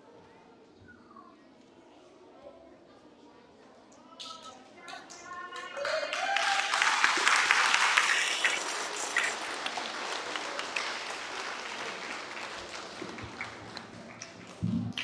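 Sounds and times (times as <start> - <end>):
children applauding: 4.9 - 15.0.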